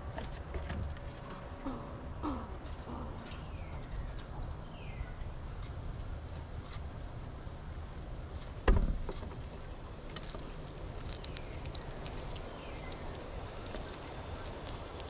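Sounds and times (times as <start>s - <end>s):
squirrel picking through seed: 5.0s - 15.0s
squirrel landing thump: 8.6s - 9.4s.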